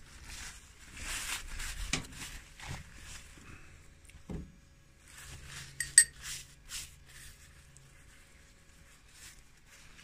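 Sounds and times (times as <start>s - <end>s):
metal spoon scraping ceramic bowl: 5.8s - 6.2s
sharp ringing clink: 5.8s - 6.2s.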